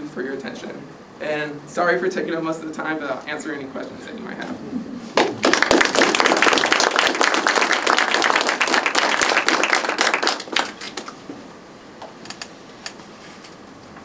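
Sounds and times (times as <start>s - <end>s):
audience applauding: 5.2s - 11.1s.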